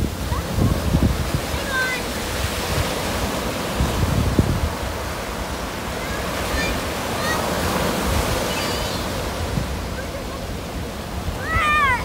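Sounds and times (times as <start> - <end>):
ocean surf breaking on beach: 0.0 - 12.0
wind gusting on microphone: 0.0 - 12.0.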